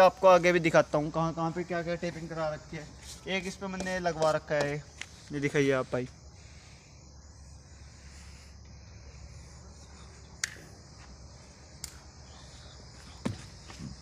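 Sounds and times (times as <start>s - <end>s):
insects chirring: 0.0s - 14.0s
sharp clicks: 10.4s - 10.6s, 11.8s - 12.0s.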